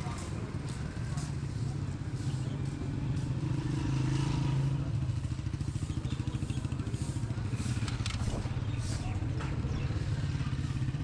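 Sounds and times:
small engine running: 1.4s - 11.0s.

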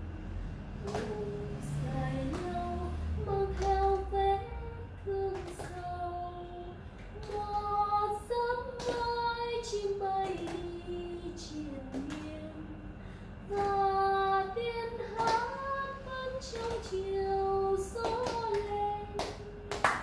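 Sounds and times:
group clapping slowly: 0.8s - 4.3s, 5.1s - 6.2s, 7.0s - 7.6s, 8.8s - 9.2s, 10.2s - 10.8s, 11.5s - 12.4s, 15.1s - 20.0s
woman singing unaccompanied: 0.8s - 20.0s.

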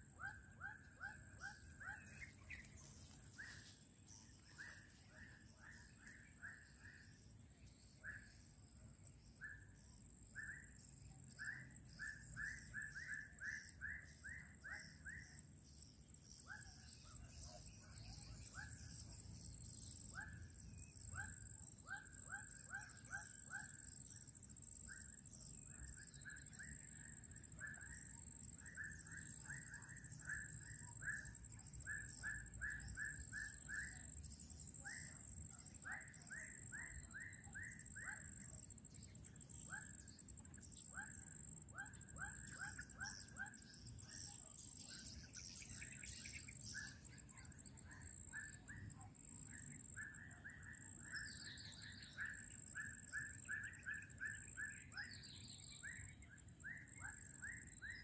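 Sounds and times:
repeated animal calls: 0.0s - 8.5s, 25.0s - 48.7s.

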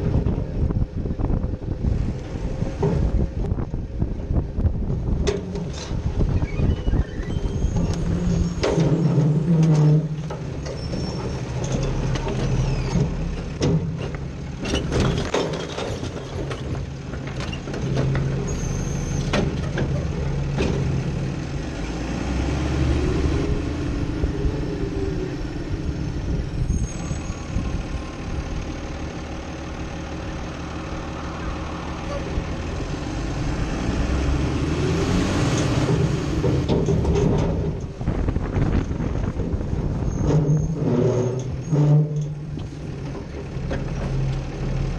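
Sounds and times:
truck body knocking and rattling: 0.0s - 21.6s, 35.7s - 44.9s
garbage truck engine running: 0.0s - 44.9s.

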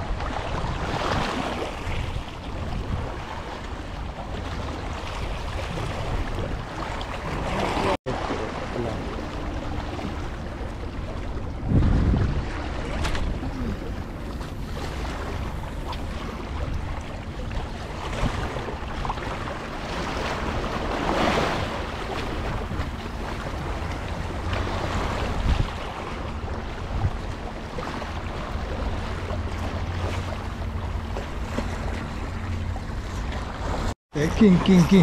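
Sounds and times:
wind rumbling on microphone: 0.0s - 34.8s
waves washing against rocks: 17.8s - 27.0s.

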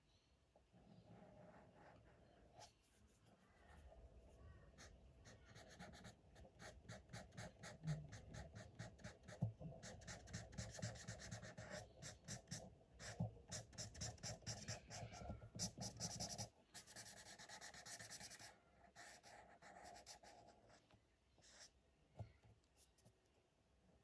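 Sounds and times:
marker scratching on paper: 4.8s - 21.7s.

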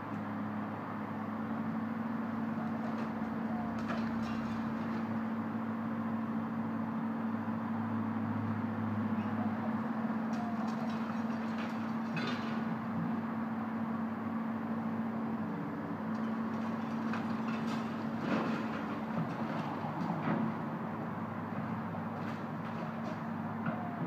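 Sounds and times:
excavator diesel engine humming: 0.0s - 24.0s
demolition debris clattering: 2.8s - 5.4s, 10.3s - 13.0s, 16.1s - 20.8s, 21.6s - 23.9s.

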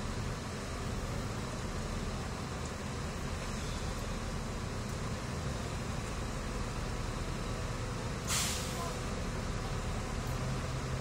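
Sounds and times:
heavy machinery diesel engines rumbling: 0.0s - 11.0s.

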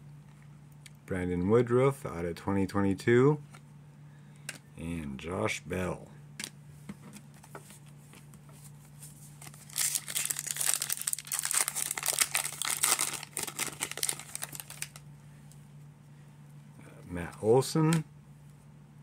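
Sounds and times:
plastic wrapper crinkling: 9.3s - 15.0s.

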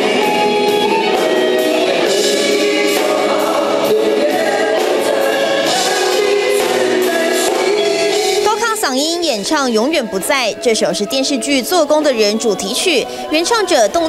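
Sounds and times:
drums: 0.0s - 10.4s
keyboard: 0.0s - 14.0s
men singing pop-rock ballad: 1.6s - 8.4s.

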